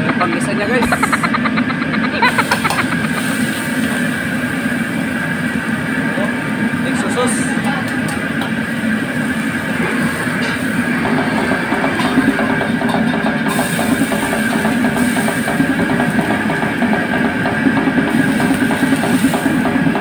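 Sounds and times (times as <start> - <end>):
wok burner roaring: 0.0 - 20.0.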